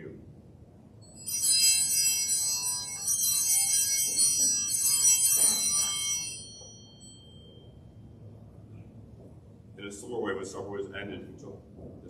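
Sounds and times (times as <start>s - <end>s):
small bells jangling: 1.0s - 8.1s.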